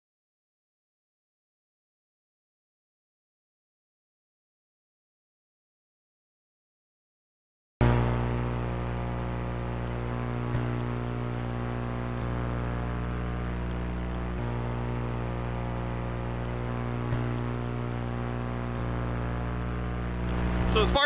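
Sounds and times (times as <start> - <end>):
electrical hum with static hiss: 7.8 - 21.0.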